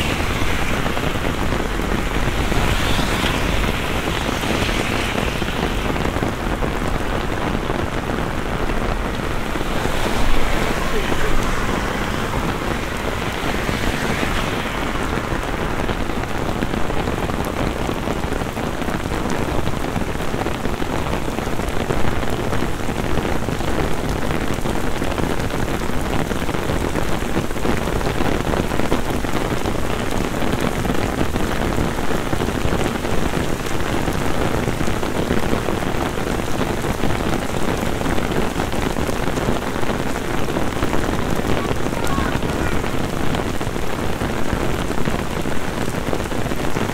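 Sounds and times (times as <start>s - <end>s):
tyres swishing through water: 0.0s - 7.4s, 8.6s - 16.0s
heavy rain on paving: 0.0s - 46.9s.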